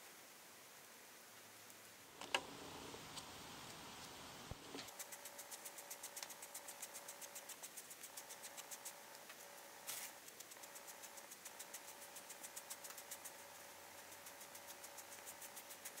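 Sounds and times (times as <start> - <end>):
faint steady hum: 0.0 - 16.0
sponge patting on clay: 4.9 - 16.0.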